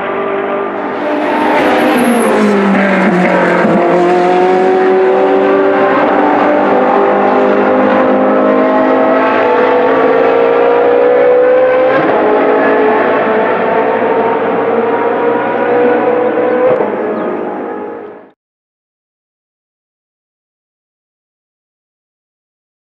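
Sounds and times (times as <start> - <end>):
race car engine accelerating: 0.0 - 18.4.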